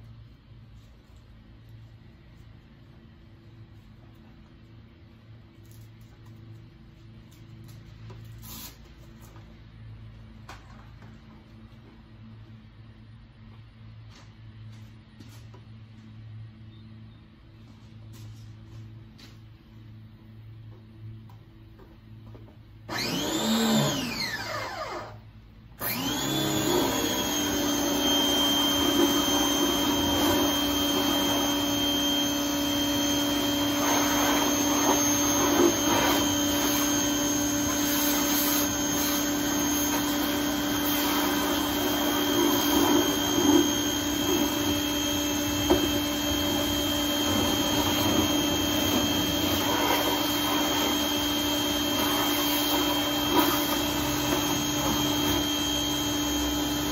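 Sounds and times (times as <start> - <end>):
pressure washer motor whining: 22.9 - 56.9.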